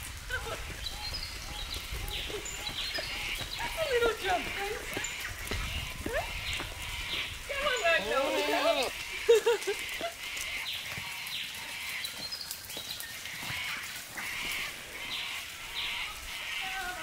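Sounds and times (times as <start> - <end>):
hooves on leaf litter: 0.0 - 17.0
goat bleating: 6.0 - 9.0.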